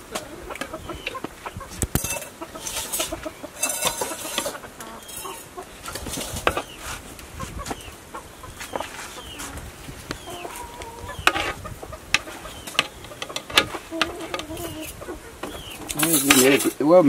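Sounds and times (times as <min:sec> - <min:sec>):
chickens clucking: 0:00.0 - 0:17.0
metal spoon clinking on pot: 0:02.0 - 0:05.5, 0:15.9 - 0:16.8.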